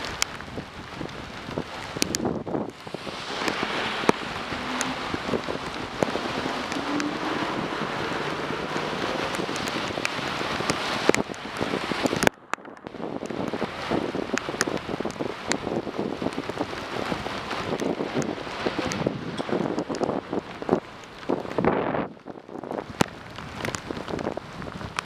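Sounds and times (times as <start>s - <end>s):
heavy rain hissing: 0.0s - 12.3s
raindrops tapping on camera: 0.0s - 25.0s.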